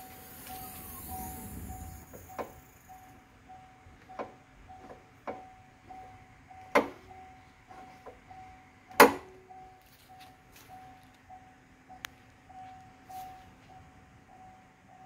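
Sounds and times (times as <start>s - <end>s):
faint high chime tone: 0.0s - 3.9s, 9.4s - 15.0s.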